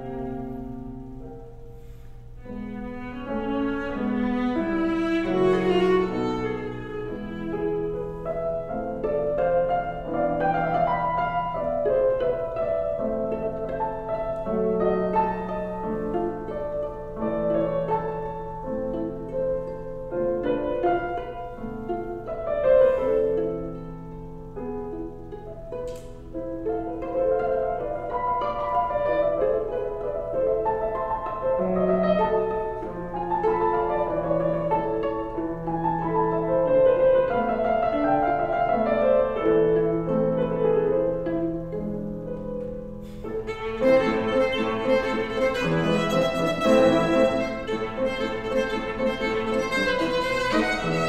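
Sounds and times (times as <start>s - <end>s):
viola and piano chamber music: 0.0s - 51.0s
faint click: 25.8s - 26.3s.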